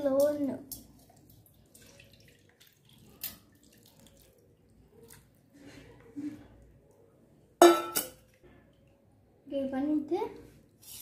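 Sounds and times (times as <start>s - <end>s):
liquid trickling into a steel bowl: 0.6s - 5.3s.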